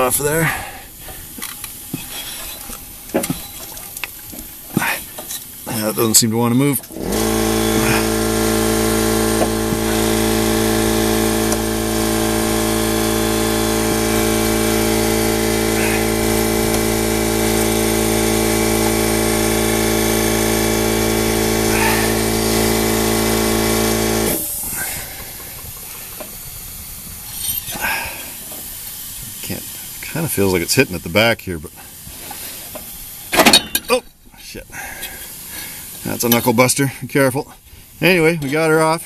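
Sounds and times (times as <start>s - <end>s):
air compressor humming: 0.0s - 36.8s
hiss of air: 7.0s - 33.5s, 34.7s - 36.3s.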